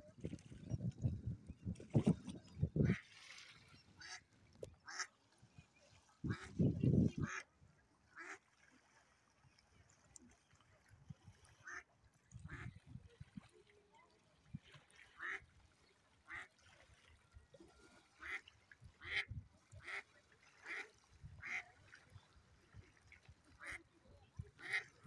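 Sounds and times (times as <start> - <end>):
duck quacking: 24.6 - 24.9.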